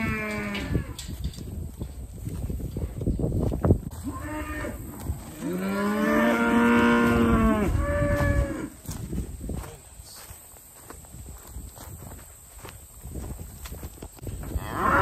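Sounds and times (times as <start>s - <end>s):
cattle mooing: 4.0s - 8.7s, 14.6s - 15.0s.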